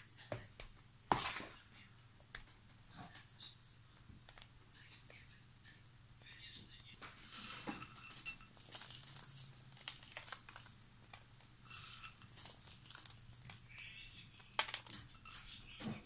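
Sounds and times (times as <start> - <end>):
crinkling and rustling: 6.2 - 16.0.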